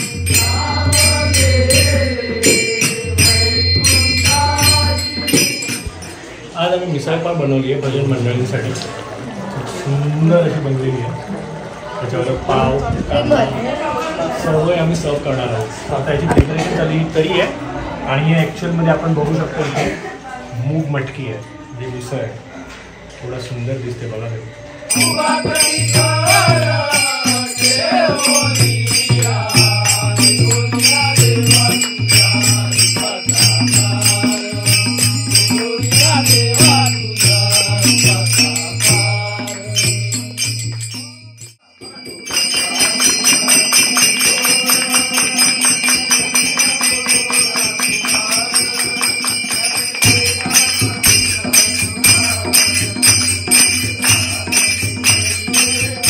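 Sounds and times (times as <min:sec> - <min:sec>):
hand cymbals jingling: 0:00.0 - 0:06.6, 0:24.8 - 0:56.0
voices singing devotional music: 0:00.0 - 0:56.0.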